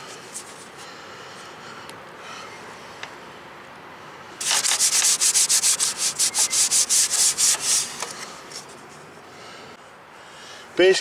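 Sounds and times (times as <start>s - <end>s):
rapid rubbing or scrubbing: 4.4s - 8.6s.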